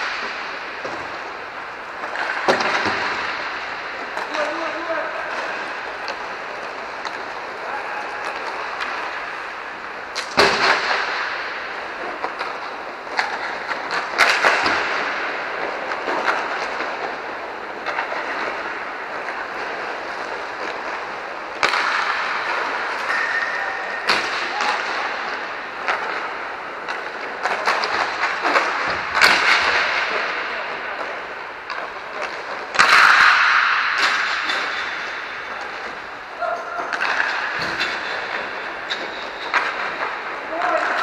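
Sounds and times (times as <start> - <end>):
puck hitting boards: 0.0 - 41.0
skate wheels rolling and scraping: 0.0 - 41.0
sticks striking puck: 0.0 - 41.0.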